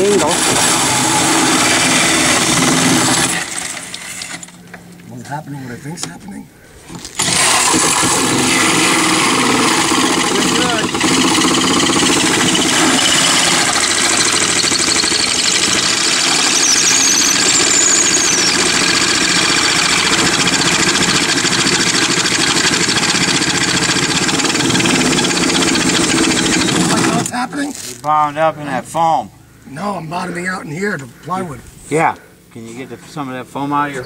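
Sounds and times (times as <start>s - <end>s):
electric drill cutting metal: 7.2s - 27.3s
high squeal: 12.9s - 19.2s.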